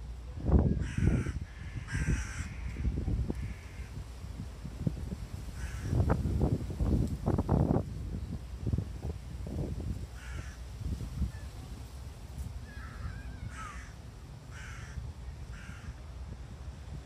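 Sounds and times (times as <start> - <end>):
crow cawing: 0.8 - 3.9, 5.6 - 6.0, 10.2 - 10.6, 12.7 - 16.0.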